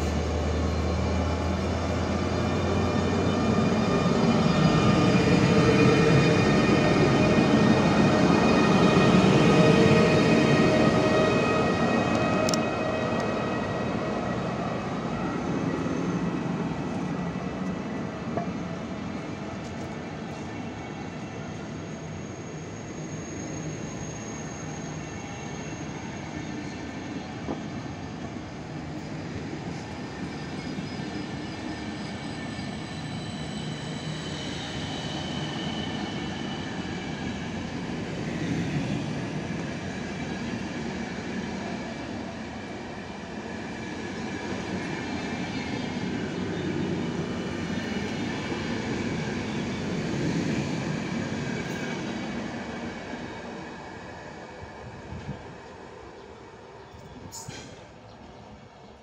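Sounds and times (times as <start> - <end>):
high wheel squeals: 21.6 - 26.6, 29.7 - 37.2.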